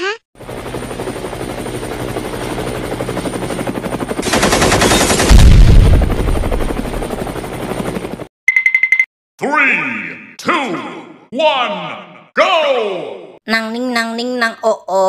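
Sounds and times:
helicopter: 0:00.4 - 0:08.3
rapid machine-gun fire: 0:04.2 - 0:07.1
loud explosion with deep boom: 0:04.3 - 0:06.7
short beeping tone: 0:08.5 - 0:09.1.

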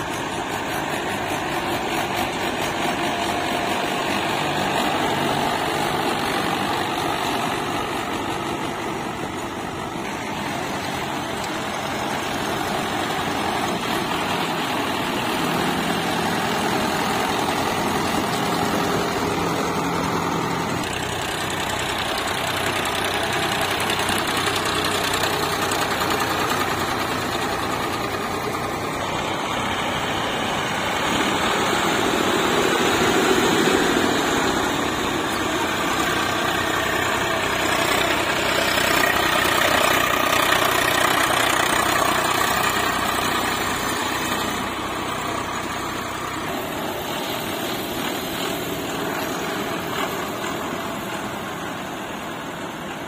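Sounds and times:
diesel tractor engine running: 0:00.0 - 0:53.0.

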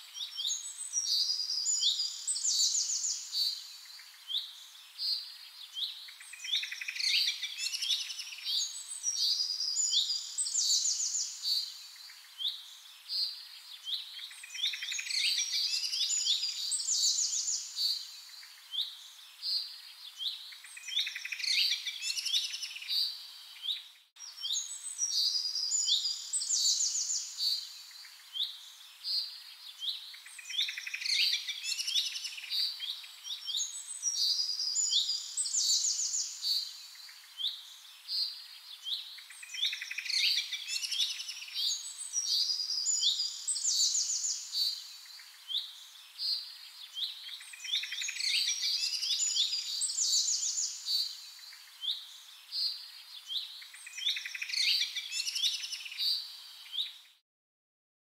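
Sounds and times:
songbirds chirping and singing: 0:00.0 - 0:57.1.

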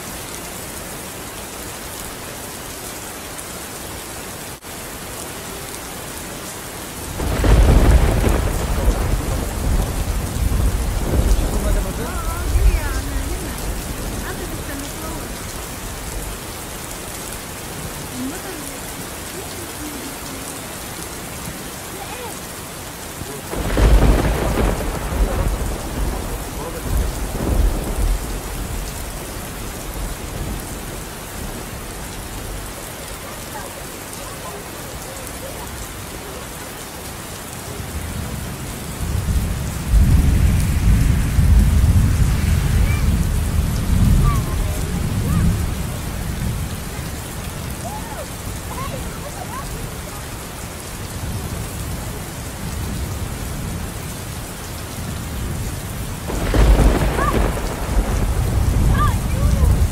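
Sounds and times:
heavy rain pouring: 0:00.0 - 0:59.9
thunder cracking and rumbling: 0:07.0 - 0:16.4, 0:23.5 - 0:32.7, 0:38.9 - 0:47.2, 0:55.1 - 0:59.9.

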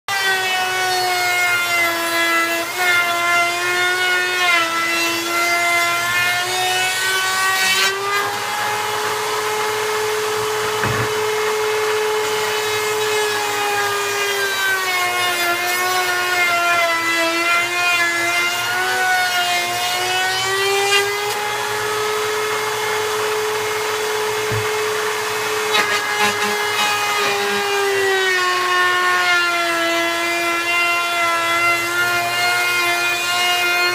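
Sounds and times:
power tool motor whining: 0:19.8 - 0:28.7.

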